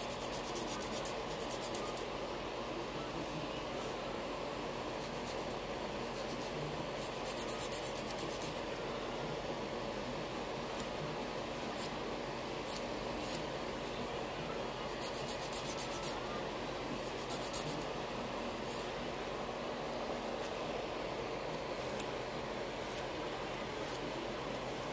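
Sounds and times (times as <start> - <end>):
steady background hum: 0.0 - 24.9
fingernail scratching: 14.9 - 16.2.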